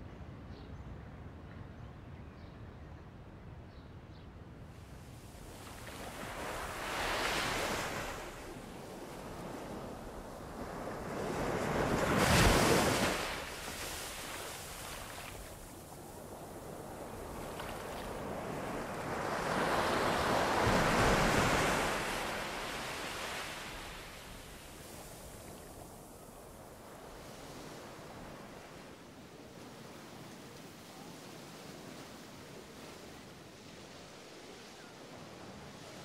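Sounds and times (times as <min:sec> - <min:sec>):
sea waves breaking on shore: 0:04.8 - 0:36.0.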